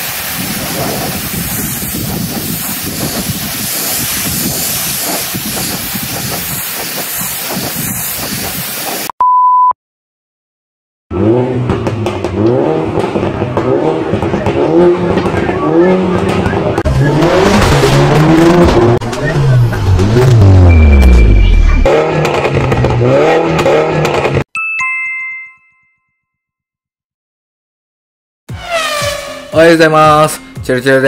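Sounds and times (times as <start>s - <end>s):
pressure washer jet hissing: 0.0s - 9.1s
short beep: 9.2s - 9.8s, 20.3s - 21.9s
car engine revving: 11.1s - 24.4s.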